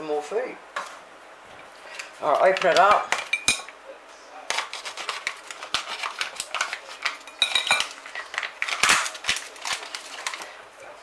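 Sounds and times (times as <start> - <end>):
knife cutting plastic packaging: 4.5 - 10.5
plastic wrapper crinkling: 4.6 - 10.6.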